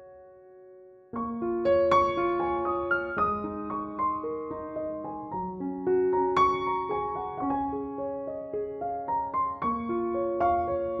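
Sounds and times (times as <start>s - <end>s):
piano music: 0.0s - 11.0s.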